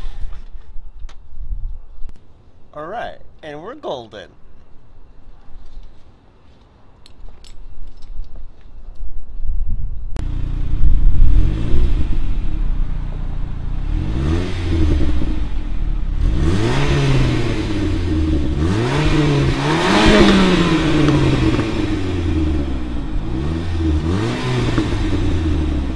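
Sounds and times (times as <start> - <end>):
car engine revving: 10.2 - 25.9.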